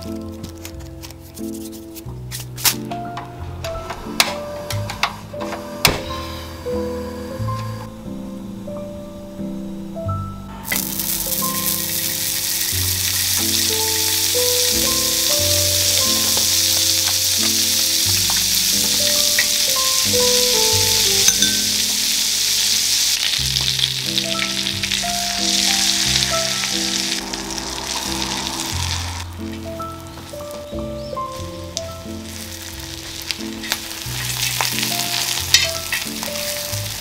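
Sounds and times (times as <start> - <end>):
light background music: 0.0 - 37.0
corn frying in butter: 10.6 - 37.0
butter sizzling on griddle: 10.7 - 37.0.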